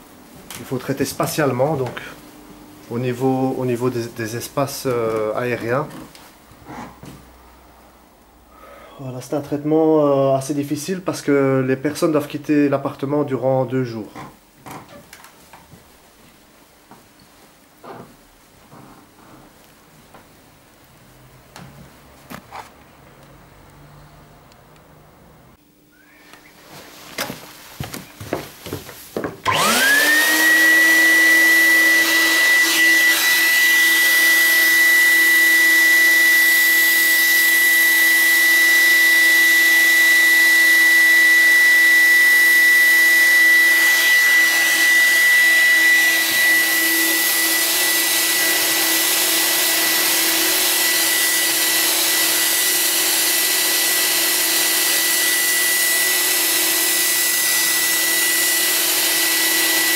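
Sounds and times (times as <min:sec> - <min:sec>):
fogger motor whine: 0:29.4 - 0:59.9.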